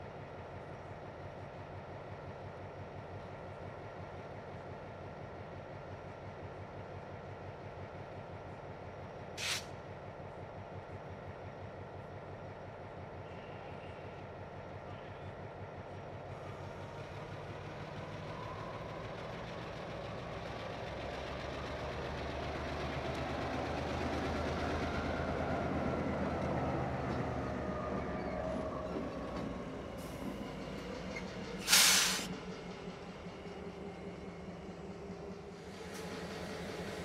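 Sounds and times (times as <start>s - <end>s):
diesel locomotives rolling past: 0.0s - 37.0s
compressed air hiss: 9.4s - 9.7s, 31.6s - 32.3s.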